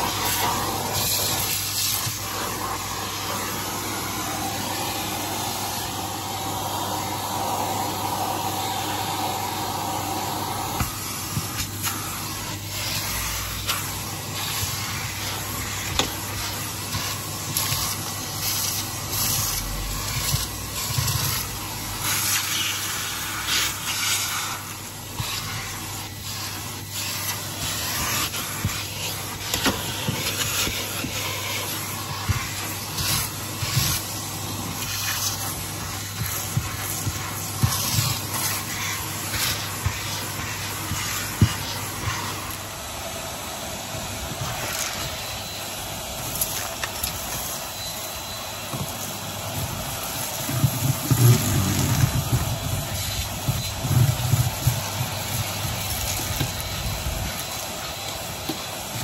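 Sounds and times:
vacuum cleaner motor hum: 0.0s - 59.0s
grit rattling up vacuum nozzle: 9.8s - 42.6s, 48.9s - 58.9s.

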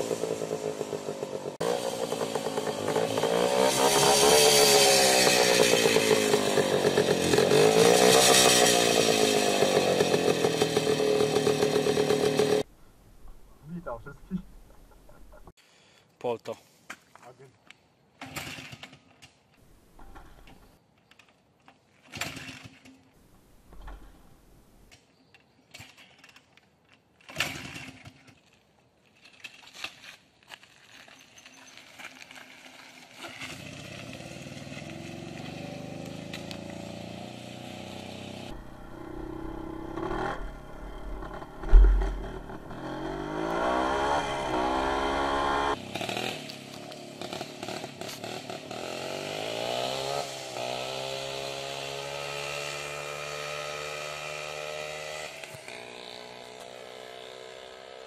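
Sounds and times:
motorcycle engine starting and revving: 0.0s - 12.7s, 32.3s - 58.0s
loud thump: 40.3s - 42.8s.

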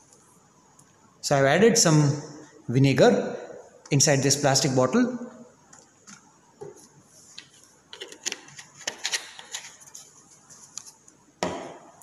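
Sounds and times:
bottle knocking on table: 11.4s - 11.8s.

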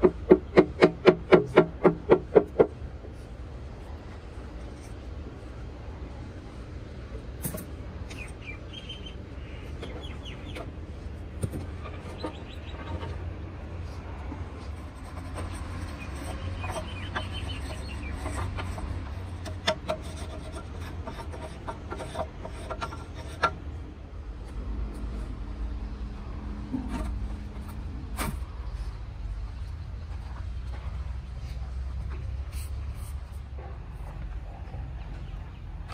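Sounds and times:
knocks and scrapes of mould pieces: 0.0s - 2.8s, 11.4s - 23.8s
bird calls: 8.1s - 10.7s, 11.8s - 13.2s, 16.0s - 18.5s.

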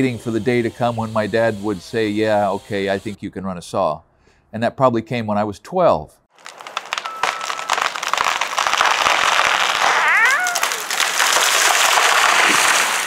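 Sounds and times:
limbs crackling and snapping: 6.3s - 13.0s
rising-and-falling call: 9.7s - 10.9s.

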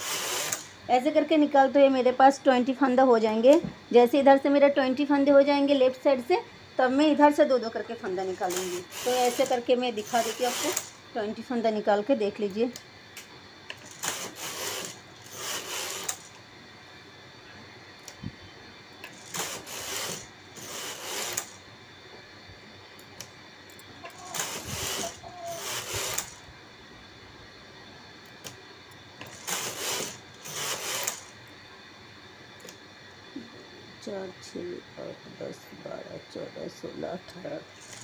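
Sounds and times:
knitting machine carriage rasping: 0.0s - 0.7s, 8.3s - 11.0s, 13.7s - 16.4s, 19.0s - 21.6s, 24.0s - 26.4s, 29.2s - 31.3s, 37.8s - 38.0s.

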